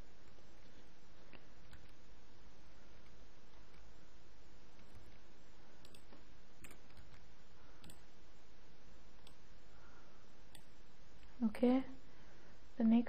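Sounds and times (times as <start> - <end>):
steady low hiss: 0.0 - 13.0
computer mouse clicking: 0.2 - 2.1, 3.0 - 3.9, 4.7 - 8.1, 9.2 - 9.4, 10.5 - 11.3.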